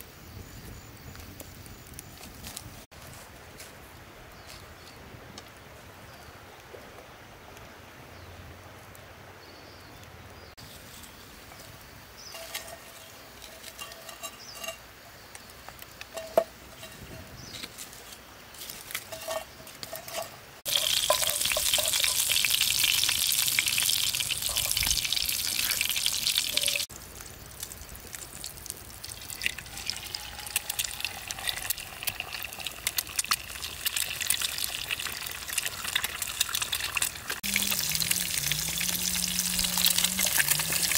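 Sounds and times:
oil sizzling in a frying pan: 0:20.0 - 0:40.9.

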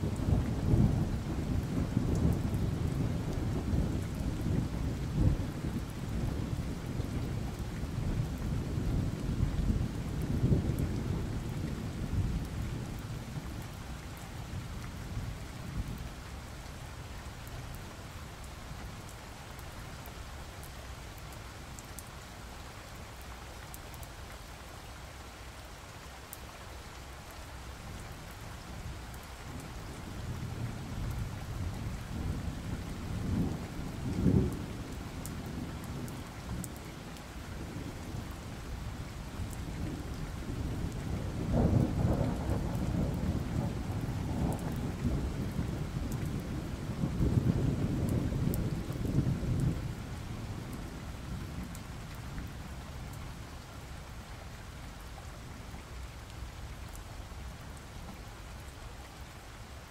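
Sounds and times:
steady rain: 0:00.0 - 0:59.9
thunder rumbling: 0:39.8 - 0:51.8.

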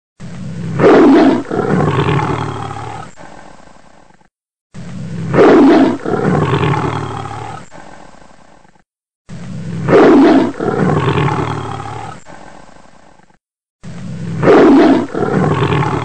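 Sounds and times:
big cat roaring: 0:00.2 - 0:03.2, 0:04.8 - 0:08.0, 0:09.3 - 0:12.5, 0:13.8 - 0:16.0.

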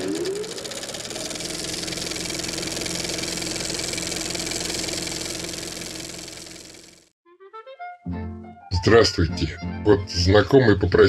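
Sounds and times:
film projector whirring: 0:00.0 - 0:07.1.

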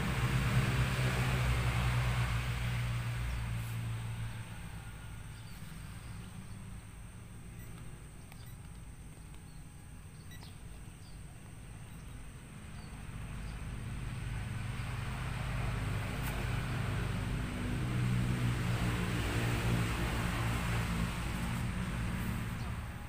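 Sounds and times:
steady low hum with hiss: 0:00.0 - 0:23.0
faint bird chirps: 0:07.4 - 0:13.6.

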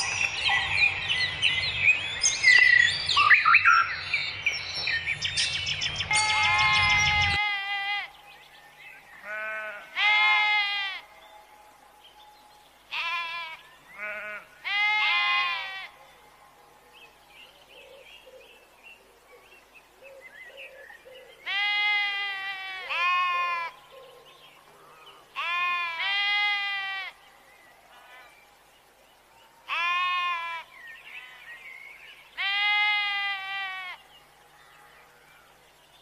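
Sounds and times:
sheep bleating: 0:09.2 - 0:11.0, 0:12.9 - 0:15.9, 0:21.5 - 0:23.7, 0:25.4 - 0:27.1, 0:29.7 - 0:30.7, 0:32.4 - 0:34.0.

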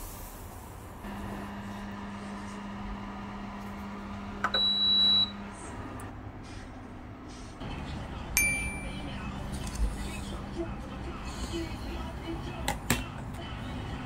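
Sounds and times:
low steady hum: 0:08.4 - 0:09.8.

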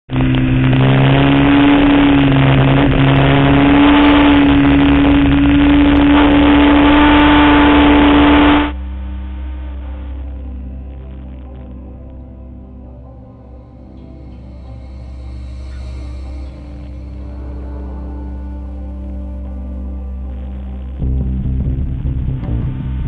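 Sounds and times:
motorcycle engine at high revs: 0:00.1 - 0:08.8
wind rush: 0:00.1 - 0:08.8
soft ambient music: 0:00.1 - 0:23.0.

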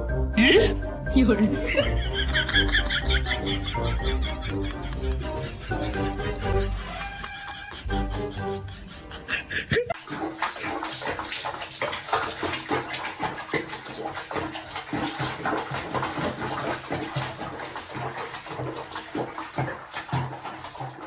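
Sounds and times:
water splashing in a sink: 0:01.7 - 0:04.9, 0:09.7 - 0:21.0.

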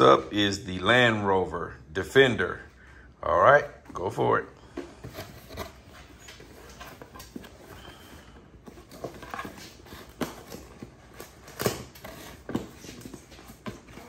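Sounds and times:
cardboard box handled and opened: 0:04.9 - 0:14.0.

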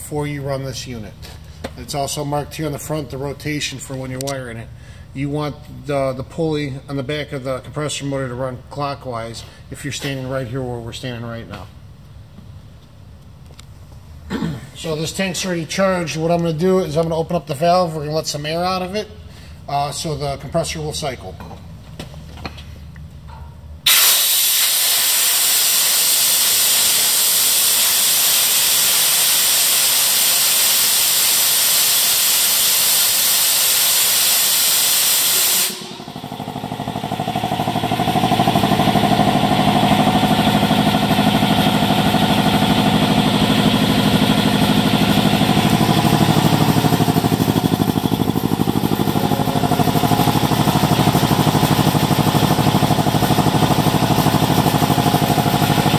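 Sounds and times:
air compressor running: 0:21.9 - 0:55.9
compressed air hissing from valve: 0:23.9 - 0:36.2.

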